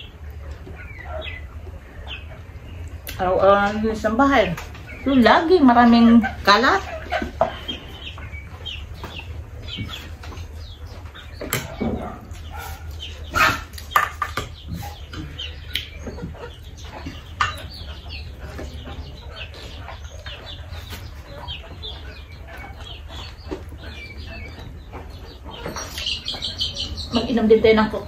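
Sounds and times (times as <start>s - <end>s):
chickens clucking: 0.0s - 28.0s.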